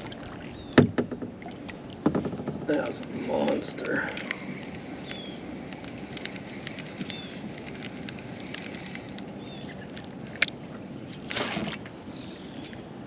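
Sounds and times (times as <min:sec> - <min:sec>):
outdoor background noise: 0:00.0 - 0:13.0
small clicks: 0:04.1 - 0:10.6.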